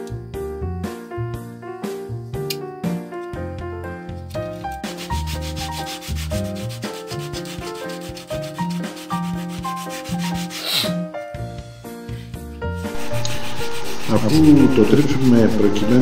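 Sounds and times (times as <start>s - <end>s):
sandpaper rasping on wood: 4.6s - 11.0s, 12.9s - 16.0s.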